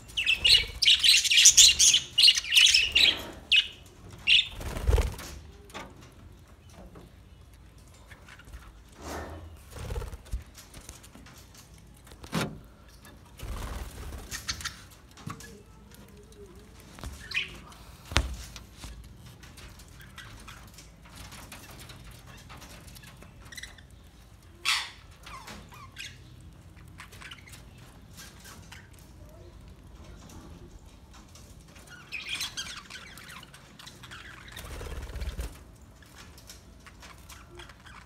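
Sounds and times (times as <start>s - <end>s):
budgerigars chirping: 0.1s - 4.6s.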